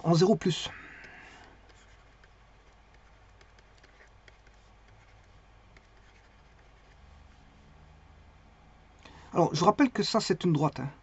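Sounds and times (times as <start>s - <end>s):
small clicks and taps: 2.9s - 5.0s.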